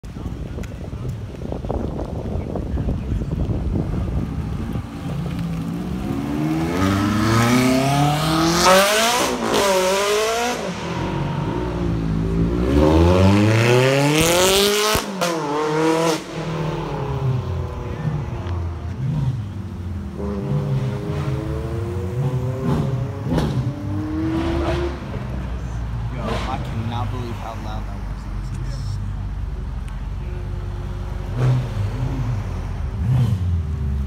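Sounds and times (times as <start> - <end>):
car engine accelerating hard: 3.4 - 25.4, 30.9 - 34.0.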